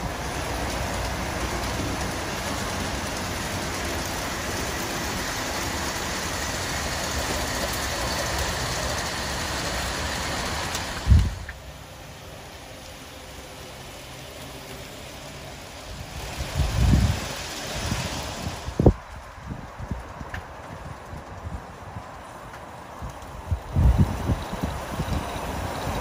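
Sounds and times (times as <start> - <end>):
model train rolling: 0.0 - 26.0.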